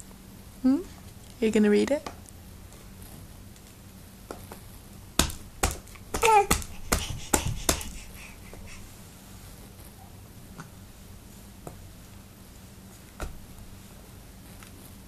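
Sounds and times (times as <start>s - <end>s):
hands slapping a board book: 5.2s - 8.0s.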